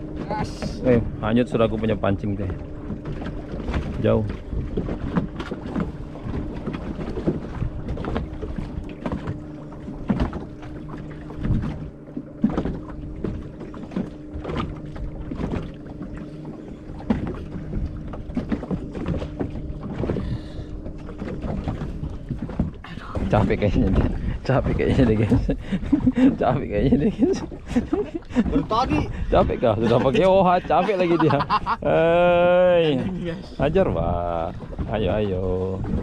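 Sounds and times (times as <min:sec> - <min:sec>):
boat engine humming: 0:00.0 - 0:36.0
wind on microphone: 0:16.9 - 0:30.4.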